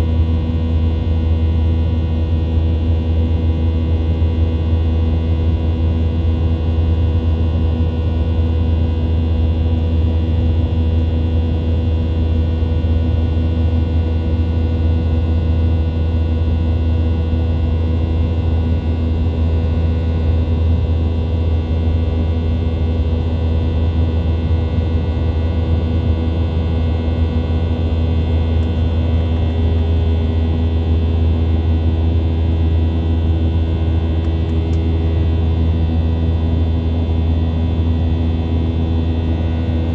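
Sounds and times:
jet engine whine: 0.0s - 39.9s
airplane cabin rumble: 18.2s - 39.9s.

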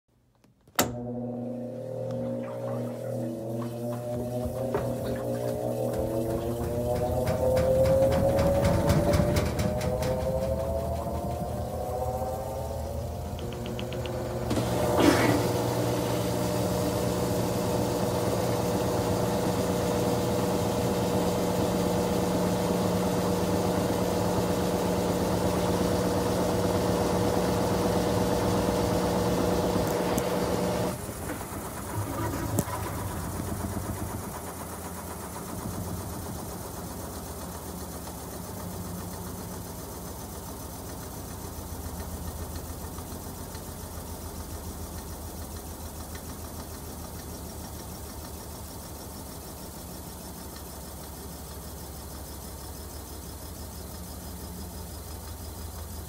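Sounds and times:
washing machine motor humming: 0.4s - 56.0s.

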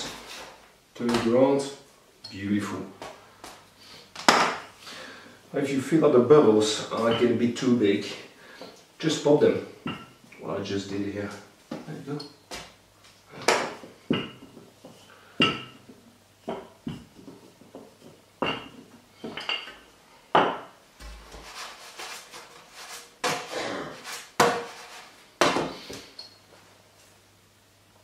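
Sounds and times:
rolling pin on stone worktop: 20.3s - 25.7s.

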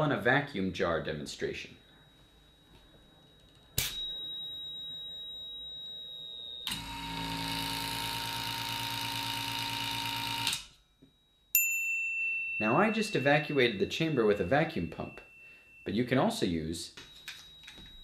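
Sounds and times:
high-pitched buzzer tone: 6.6s - 11.1s
vacuum pump motor humming: 6.8s - 10.5s.

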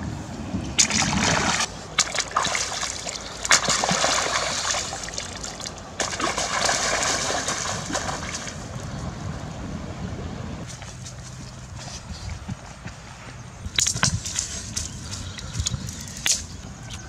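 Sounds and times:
river water splashing: 0.7s - 10.0s
sharp slaps on water: 0.8s - 8.6s, 13.8s - 17.0s.

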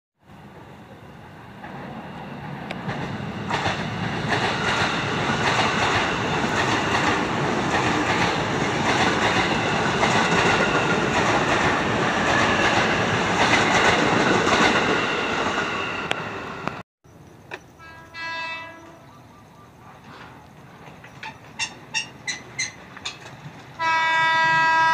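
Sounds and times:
train wheels clattering over rail joints: 2.7s - 15.0s, 20.0s - 24.7s.

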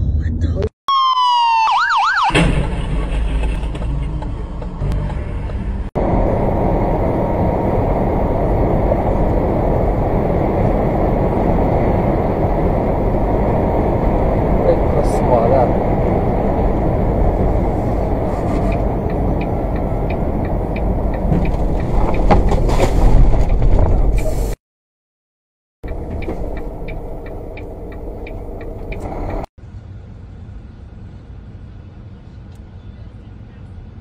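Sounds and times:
truck road and engine rumble: 0.0s - 24.6s, 25.8s - 34.0s
light ticking: 25.9s - 29.5s.

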